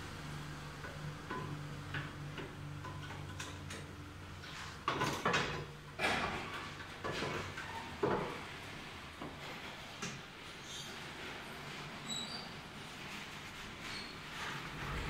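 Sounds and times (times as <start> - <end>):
tools knocking and clattering: 4.8 - 8.4.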